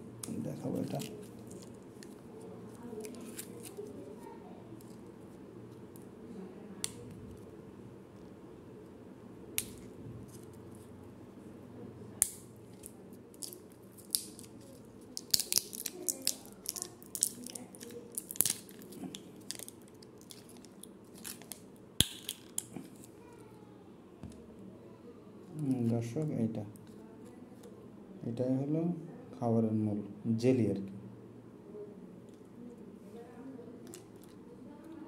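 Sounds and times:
plastic cup lid crinkling: 0.2s - 4.0s, 12.7s - 23.1s.

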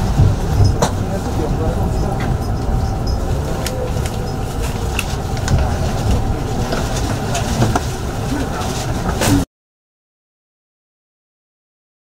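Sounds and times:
train running rumble: 0.0s - 9.5s.

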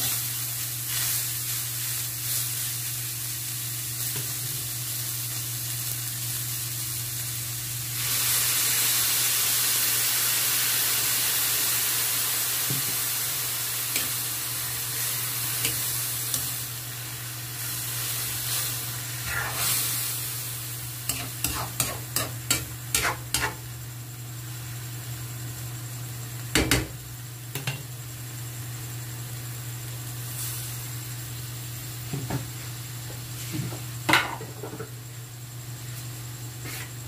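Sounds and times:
food sizzling: 0.0s - 37.0s
steady low hum: 12.7s - 37.0s
metal spatula stirring in wok: 21.1s - 23.6s.

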